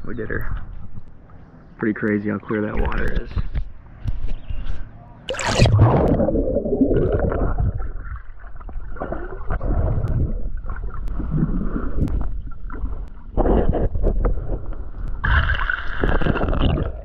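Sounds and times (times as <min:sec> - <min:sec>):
muffled underwater gurgling: 0:05.3 - 0:17.0.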